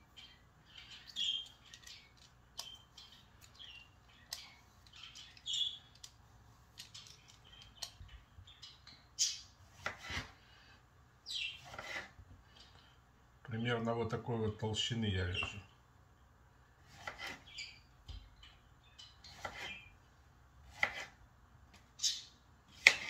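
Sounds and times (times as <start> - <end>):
knife cutting onto wooden board: 11.6 - 12.1, 20.7 - 21.2, 22.8 - 23.0
vegetable peeler rasping: 11.6 - 12.2.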